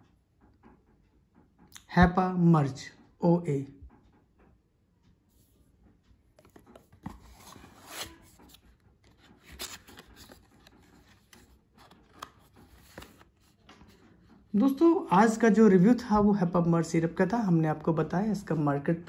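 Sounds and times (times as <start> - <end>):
cardboard carton rustling: 6.4 - 14.0.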